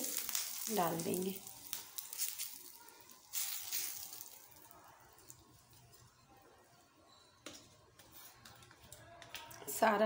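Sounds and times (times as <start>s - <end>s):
hot oil sizzling: 0.0s - 5.8s.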